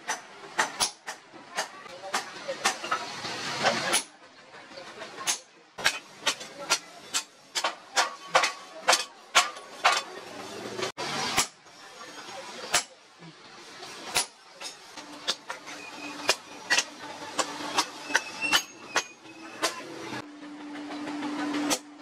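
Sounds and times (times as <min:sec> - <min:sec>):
hammer striking hot metal: 0:00.0 - 0:04.1, 0:05.2 - 0:10.2, 0:11.0 - 0:11.8, 0:12.6 - 0:13.0, 0:14.0 - 0:19.9.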